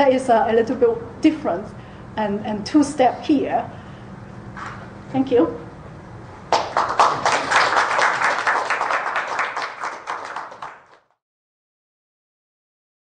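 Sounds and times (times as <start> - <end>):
audience applause: 6.5 - 11.2.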